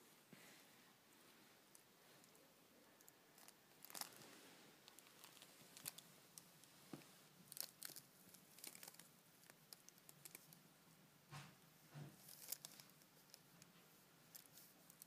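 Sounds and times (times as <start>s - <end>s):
fabric or plastic crinkling: 3.4s - 6.1s, 7.5s - 10.5s, 12.2s - 13.4s.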